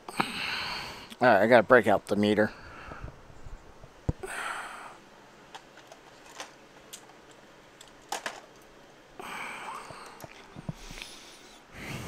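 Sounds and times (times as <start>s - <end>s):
multimeter leads clicking and rustling: 5.5s - 8.8s, 9.6s - 11.1s.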